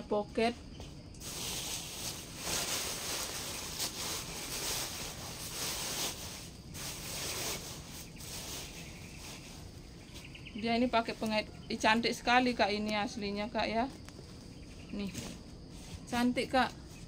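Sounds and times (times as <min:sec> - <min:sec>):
cloth bag and plastic rustling: 0:01.2 - 0:11.4.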